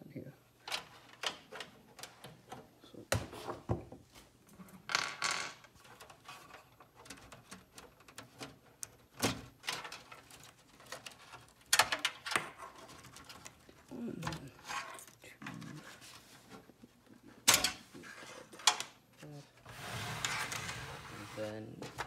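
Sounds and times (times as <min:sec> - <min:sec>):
cables rustling: 0:05.6 - 0:22.0.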